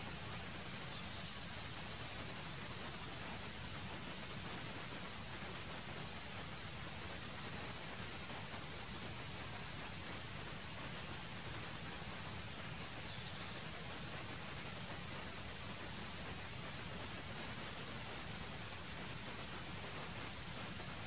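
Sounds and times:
rapid insect trill: 0.0 - 21.0
soft background hiss: 0.0 - 21.0
high-pitched insect drone: 0.2 - 1.4, 13.0 - 13.9.

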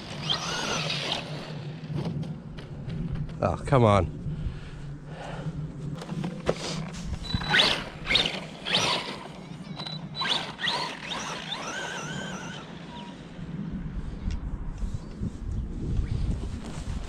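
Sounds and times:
toy truck electric motor whining: 0.0 - 2.1, 7.2 - 13.3.

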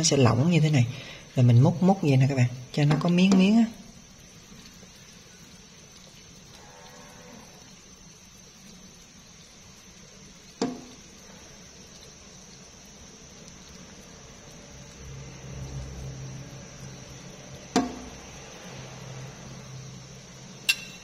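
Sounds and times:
broth simmering with soft hiss: 0.0 - 21.0
spoon clink: 20.7 - 21.0.

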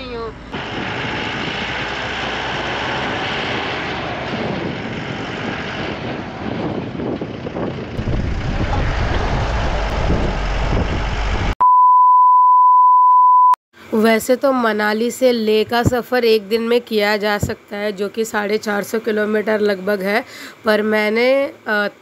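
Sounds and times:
wind and road noise: 0.0 - 11.6
deep rumble: 0.4 - 11.6
steady high beep: 11.6 - 13.6.

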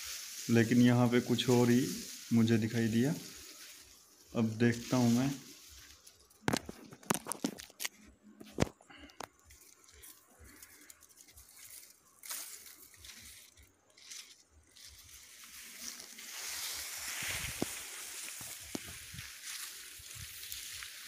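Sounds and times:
rice plants rustling: 0.0 - 21.0
soft footfalls: 15.7 - 21.0.

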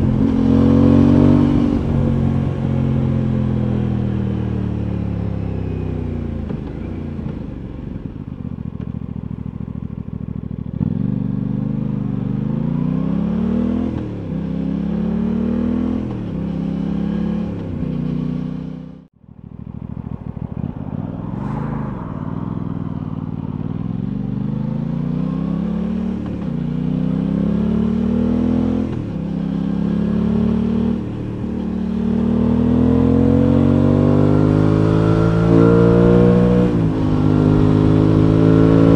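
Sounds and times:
motorcycle engine revving: 0.0 - 38.9
wind rushing: 0.1 - 4.3, 20.0 - 24.8.

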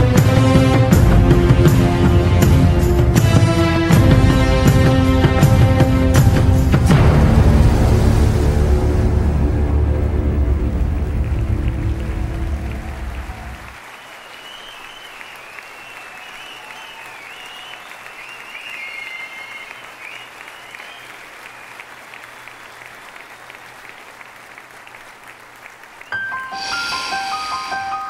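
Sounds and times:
audience applauding: 9.8 - 28.0
music with bell-like notes: 26.2 - 28.0.

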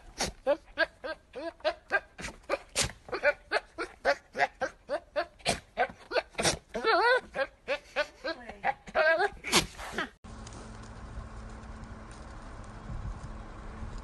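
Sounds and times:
goat bleating: 0.4 - 9.4.

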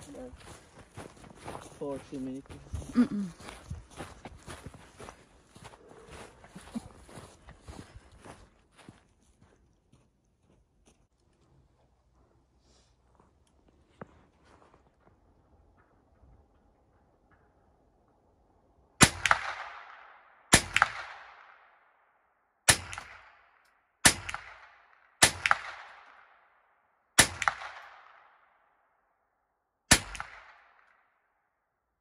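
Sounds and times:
gunshots with echo: 19.0 - 21.7, 22.7 - 26.4, 27.2 - 28.4, 29.9 - 30.9.

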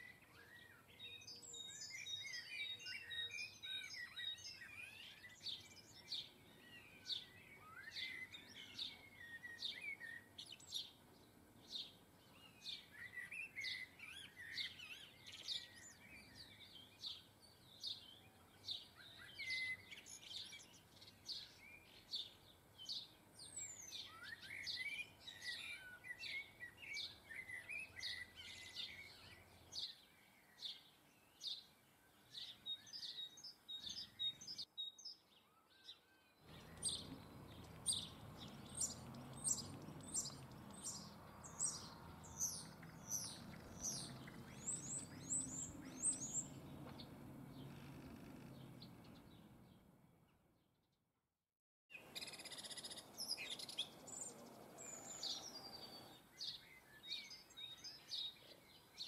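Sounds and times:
birds chirping and singing: 0.0 - 49.8, 52.0 - 59.0.

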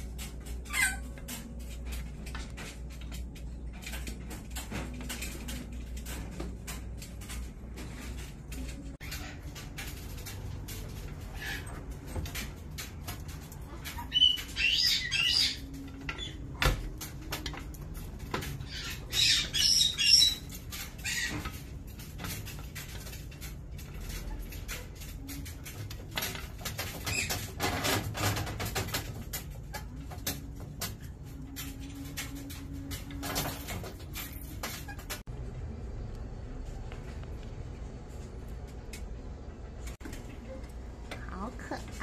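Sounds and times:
clicks and scratches: 0.0 - 42.0
parrots squeaky chirps: 0.2 - 1.5, 13.1 - 17.6, 18.2 - 23.1, 26.2 - 30.4.

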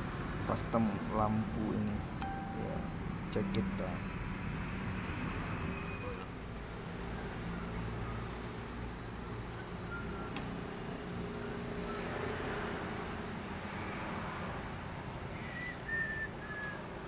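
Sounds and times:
road traffic rumble: 0.0 - 17.0
high-pitched chirps: 2.2 - 3.2.

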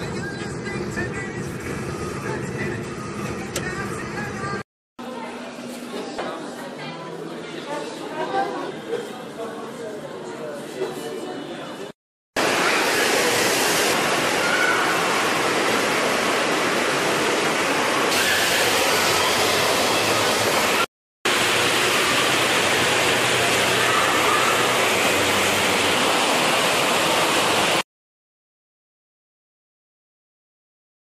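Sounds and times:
churning pool water rushing: 12.4 - 27.8.

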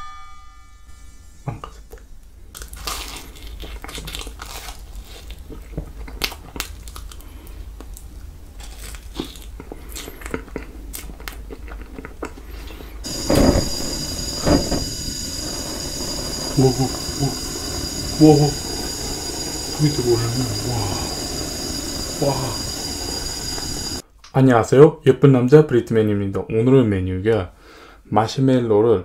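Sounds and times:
chewing crunchy marshmallows: 2.5 - 13.0
gas stove burner hissing: 13.0 - 24.0.

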